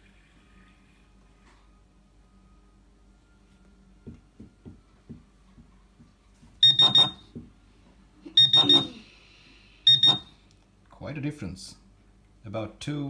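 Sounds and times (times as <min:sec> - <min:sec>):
pinpointer high-pitched beeps: 0:06.6 - 0:07.2, 0:08.3 - 0:09.0, 0:09.9 - 0:10.3.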